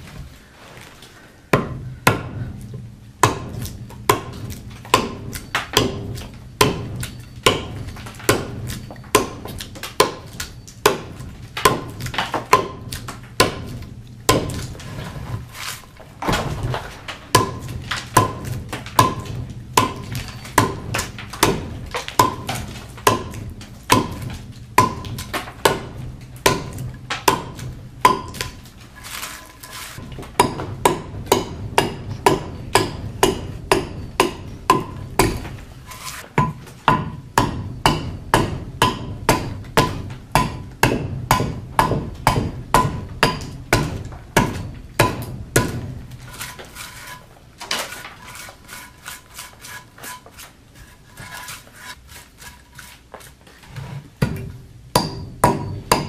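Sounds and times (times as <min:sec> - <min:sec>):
adze chopping wood: 0:03.2 - 0:14.9, 0:16.2 - 0:46.6, 0:54.2 - 0:56.0.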